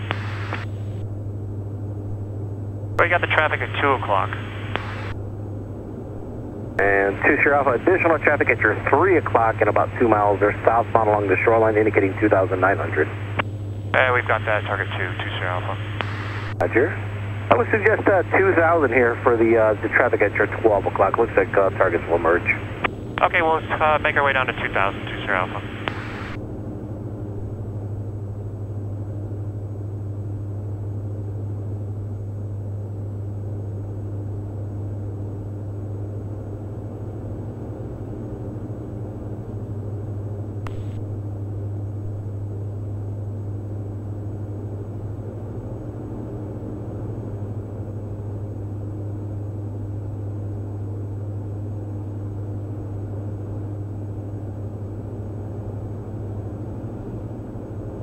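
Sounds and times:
aircraft engine and propeller drone: 0.0 - 58.0
faint click: 16.0 - 16.2.

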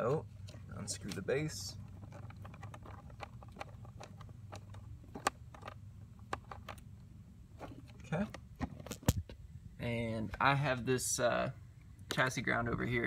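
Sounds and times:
steady low hum: 0.0 - 13.0
plastic terminal clicks and scrapes: 0.4 - 9.4.

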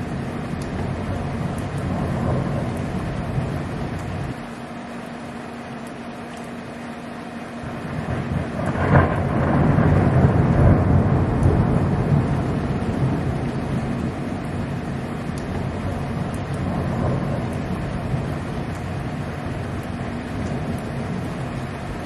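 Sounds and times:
thunder rumbling: 0.0 - 4.5, 7.6 - 22.0
thunder crack: 7.9 - 14.2.

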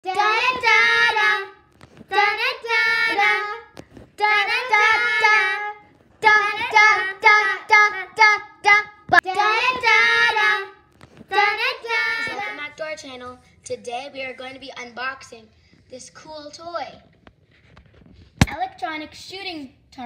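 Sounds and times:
child singing: 0.0 - 13.4.

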